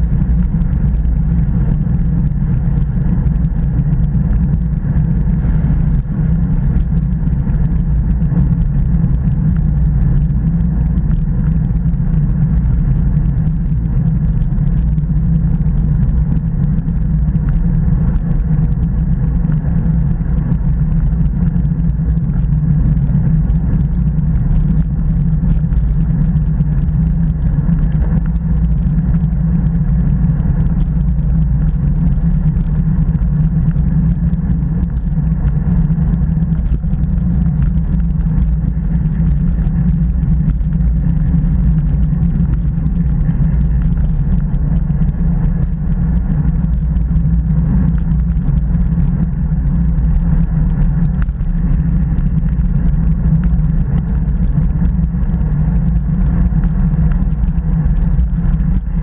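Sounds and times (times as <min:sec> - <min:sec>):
wind rumble on microphone: 0:00.0 - 0:59.0.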